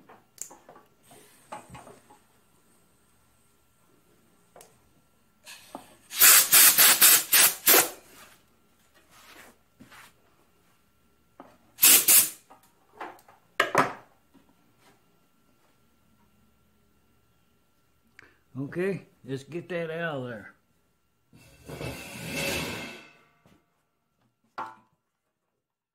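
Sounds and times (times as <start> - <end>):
compressed air blow gun hissing: 5.5 - 7.9, 11.8 - 12.4.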